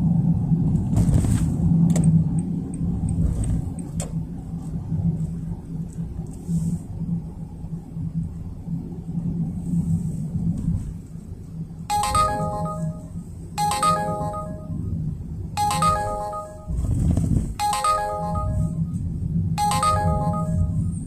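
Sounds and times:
car cabin road rumble: 0.0s - 11.8s, 16.7s - 17.6s
electronic chime melody: 11.9s - 15.0s, 15.6s - 16.9s, 17.6s - 19.0s, 19.6s - 21.0s.

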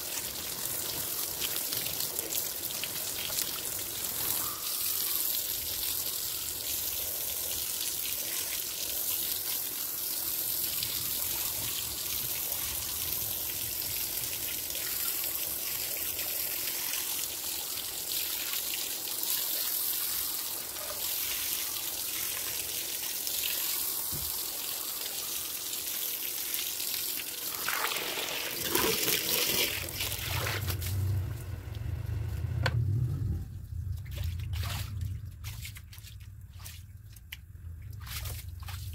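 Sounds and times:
water trickling: 0.0s - 32.0s
low hum: 30.1s - 38.9s.

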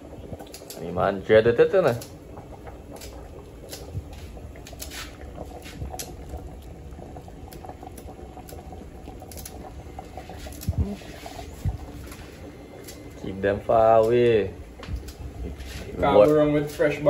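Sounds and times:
pot of broth boiling: 0.0s - 17.0s
small ticks and pops: 0.1s - 0.9s, 1.9s - 11.0s, 12.8s - 13.0s, 13.9s - 15.2s.

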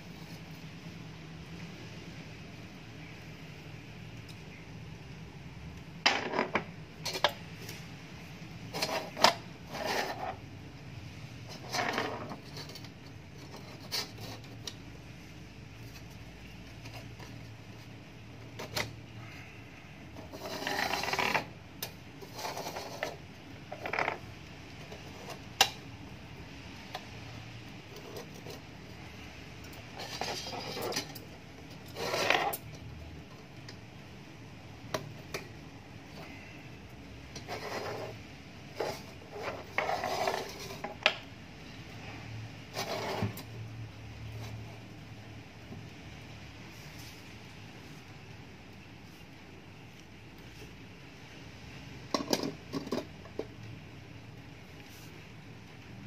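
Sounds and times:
metal stove parts clinking and scraping: 8.7s - 10.4s, 11.5s - 14.8s, 20.2s - 24.2s, 29.6s - 32.8s, 37.3s - 41.0s.

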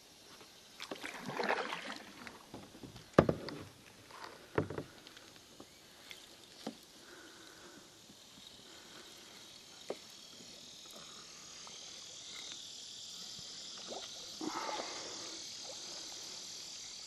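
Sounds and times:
high chorus of calling animals: 14.4s - 16.1s.

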